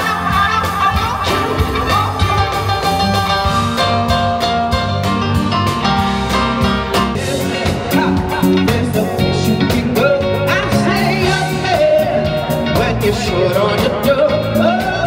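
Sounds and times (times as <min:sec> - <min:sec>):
person singing: 0:00.0 - 0:03.5, 0:07.2 - 0:15.0
live rock band playing: 0:00.0 - 0:15.0.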